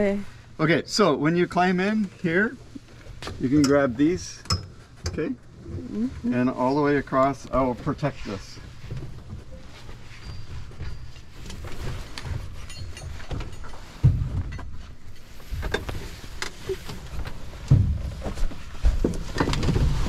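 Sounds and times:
knocks and bumps in cabin: 17.6s - 20.0s.

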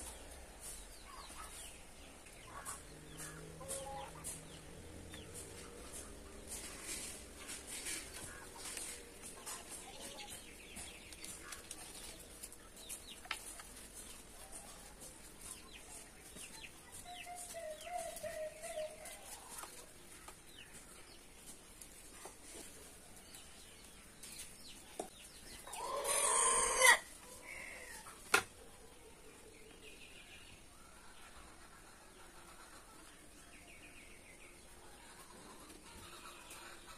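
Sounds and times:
chickens calling: 0.0s - 36.9s
hands rustling soil: 5.4s - 24.8s.

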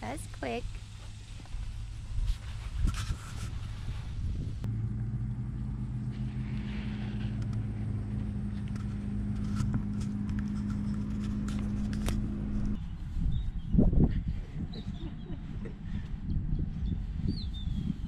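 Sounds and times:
low mechanical hum: 2.8s - 12.9s.

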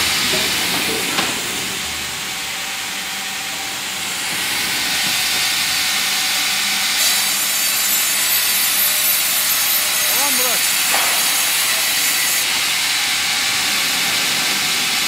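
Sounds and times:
band saw cutting wood: 4.0s - 15.0s.

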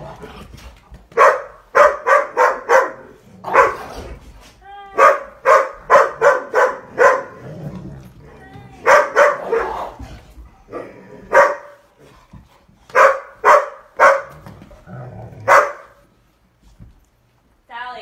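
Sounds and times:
dog barking: 1.1s - 3.9s, 5.0s - 7.4s, 8.8s - 10.0s, 11.3s - 11.8s, 12.9s - 14.4s, 15.4s - 16.0s.

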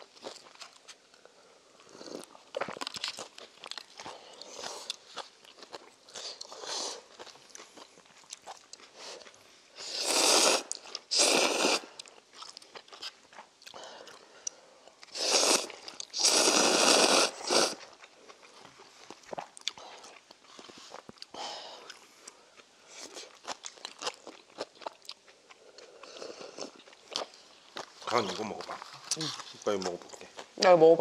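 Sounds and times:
chewing and mouth noises: 0.0s - 9.5s, 10.1s - 30.7s
person slurping noodles: 6.2s - 7.1s, 9.8s - 12.0s, 15.1s - 17.9s.

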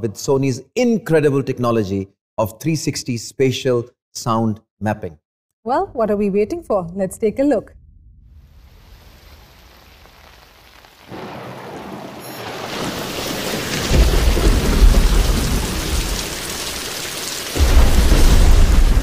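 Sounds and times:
deep rolling thunder: 7.6s - 19.0s
rain hissing: 8.3s - 19.0s.

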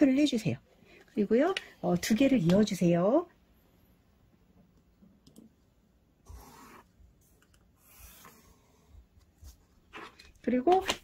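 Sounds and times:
pencil scratching on paper: 6.3s - 6.9s.

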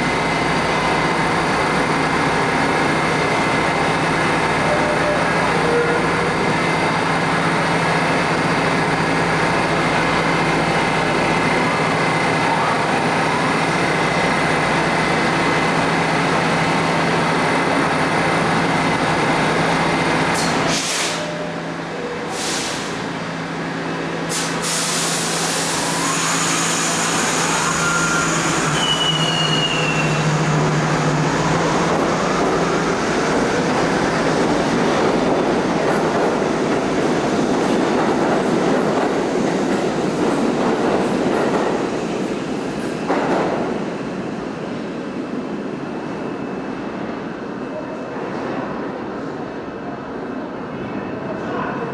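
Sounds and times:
high wheel squeal: 25.9s - 30.5s.

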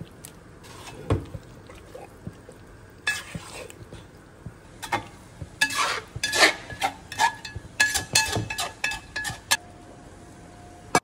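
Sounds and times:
metal spatula scraping pot: 3.0s - 3.7s, 4.8s - 9.6s.

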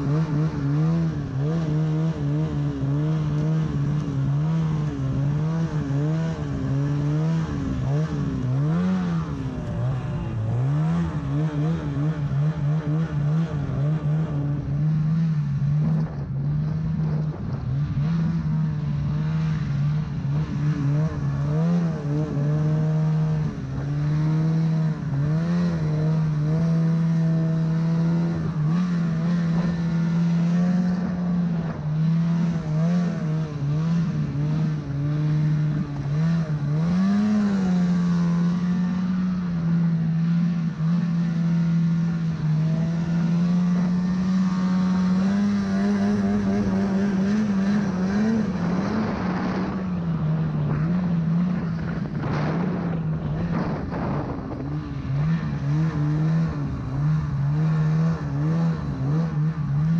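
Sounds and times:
snowmobile engine revving: 0.0s - 59.9s
wind buffeting microphone: 48.0s - 55.9s.

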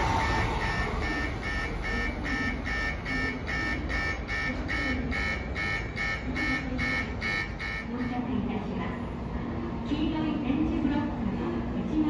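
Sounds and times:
electronic platform bell buzzing: 0.0s - 8.0s
low rumble of departing train: 0.0s - 12.0s.

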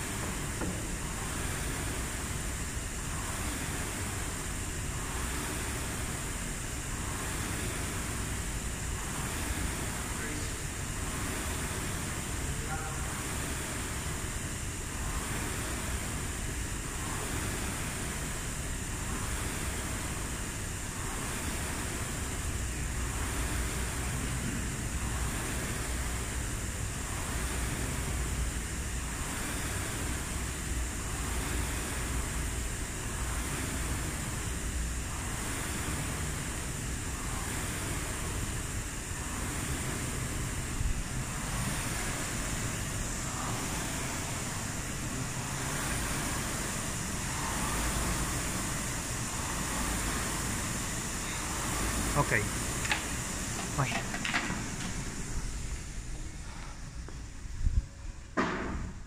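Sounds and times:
rowing machine fan whooshing: 0.0s - 59.0s.

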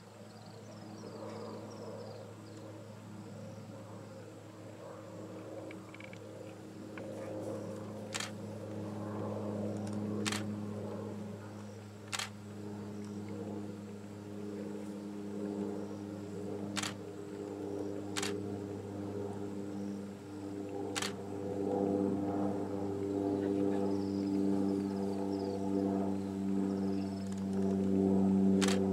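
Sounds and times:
steady low hum: 0.0s - 28.9s
camera shutter clicks: 8.1s - 8.4s, 10.2s - 10.5s, 12.1s - 12.3s, 16.8s - 17.0s, 18.2s - 18.4s, 21.0s - 21.2s, 28.6s - 28.8s.

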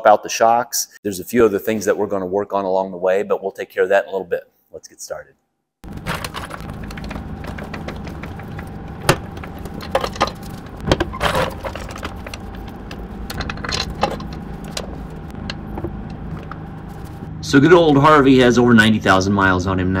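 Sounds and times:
steady low hum: 5.8s - 20.0s.

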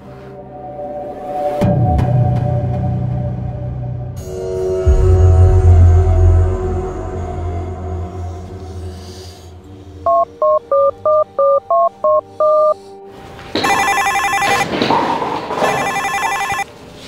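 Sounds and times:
mobile phone ringtone: 10.1s - 12.8s, 13.6s - 14.7s, 15.6s - 16.7s
phone keypad beeps: 10.1s - 12.8s, 13.6s - 14.6s, 15.8s - 16.6s.

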